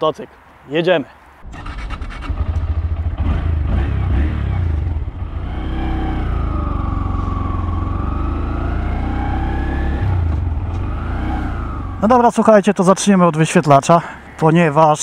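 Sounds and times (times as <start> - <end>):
motorcycle engine running: 1.5 - 12.1.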